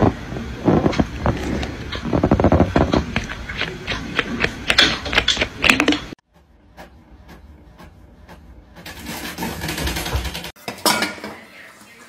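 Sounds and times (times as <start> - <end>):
clicking and clatter: 0.8 - 6.2.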